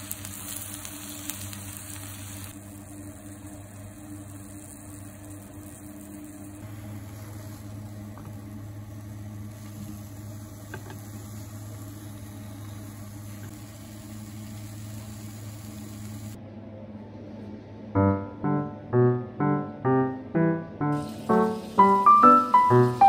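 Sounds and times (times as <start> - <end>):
kitchen appliances humming: 0.0 - 23.0
faint hiss: 6.6 - 16.4, 20.8 - 23.0.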